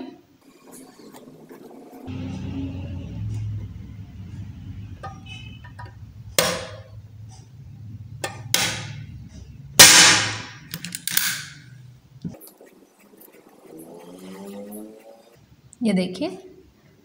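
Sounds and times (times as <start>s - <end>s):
staple gun metallic clacks: 10.7s - 11.5s.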